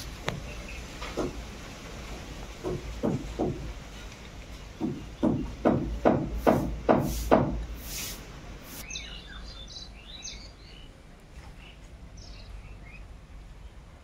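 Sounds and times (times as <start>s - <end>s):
small birds chirping: 0.0s - 14.0s
sharp knock: 2.6s - 3.7s, 4.8s - 7.7s.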